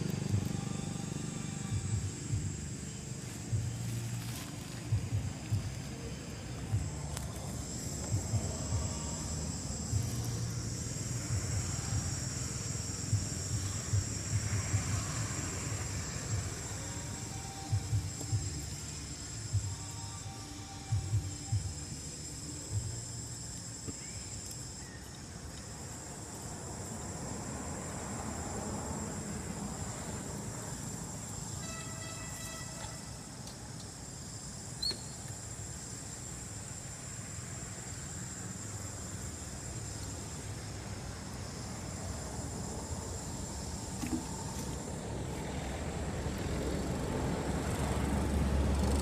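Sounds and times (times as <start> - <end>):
low rumble: 0.0 - 20.0
insects droning: 0.0 - 49.0.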